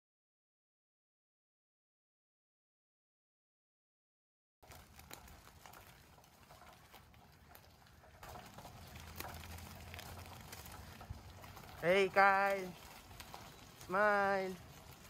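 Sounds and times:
footsteps crunching on gravel: 4.6s - 15.0s.

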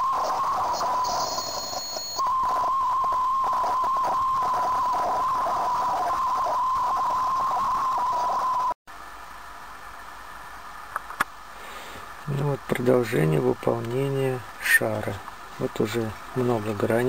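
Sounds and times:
lathe high-pitched whine: 0.0s - 8.8s.

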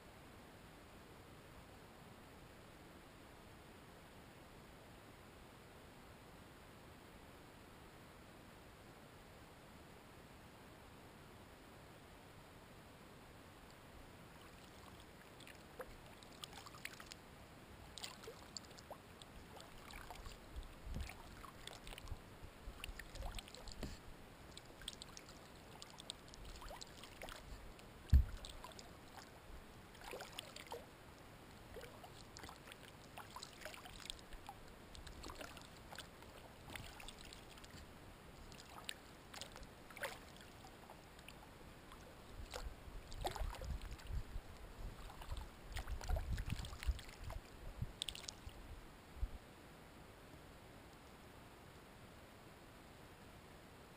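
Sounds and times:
paddle splashing water: 14.4s - 17.2s, 17.9s - 30.9s, 31.7s - 44.2s, 44.9s - 48.6s
sharp low thump: 28.1s - 28.4s.

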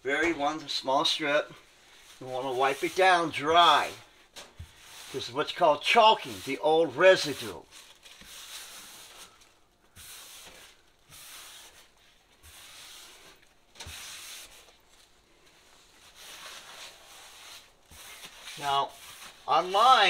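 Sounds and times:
paper towel rubbing wall: 1.9s - 20.0s.

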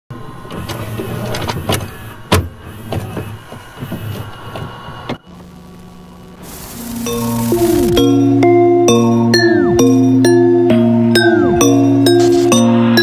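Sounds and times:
electrical hum: 0.1s - 13.0s
hiss: 6.4s - 7.9s.

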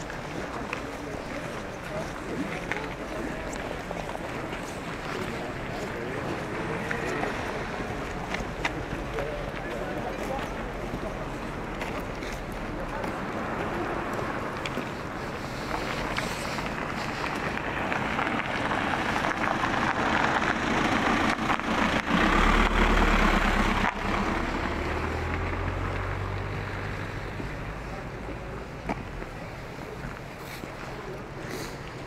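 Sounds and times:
low engine hum: 0.0s - 32.0s
vehicle passing by: 4.8s - 28.5s.

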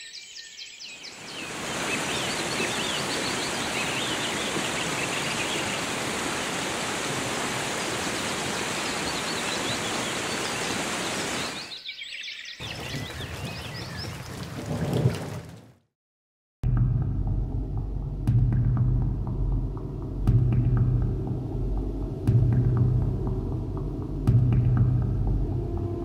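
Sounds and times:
birds chirping: 0.0s - 6.6s, 7.8s - 14.5s
waterfall splashing onto rocks: 1.3s - 11.7s.

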